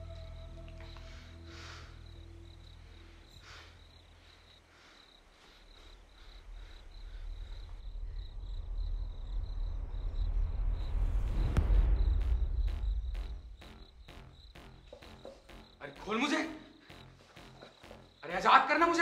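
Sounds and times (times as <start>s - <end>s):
cricket chirping: 0.0s - 19.0s
low drone: 6.4s - 18.3s.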